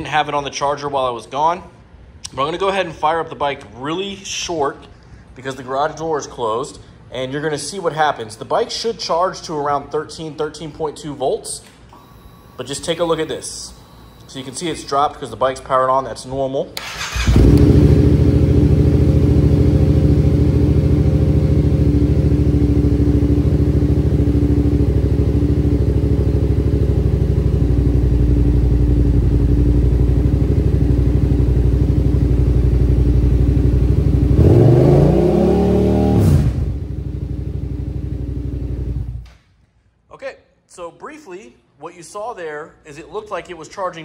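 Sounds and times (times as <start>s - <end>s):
motorcycle engine revving: 16.8s - 39.2s
motorcycle engine idling: 17.1s - 34.4s.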